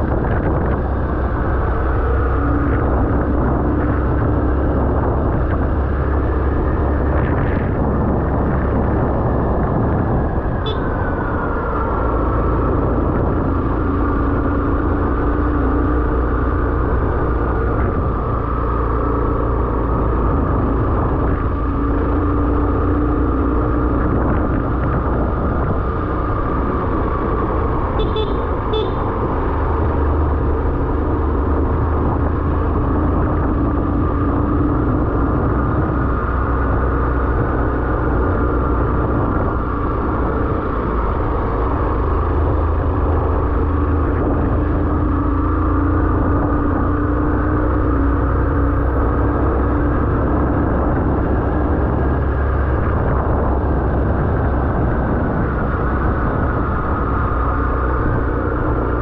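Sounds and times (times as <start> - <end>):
vehicle engine running: 0.0 - 59.0.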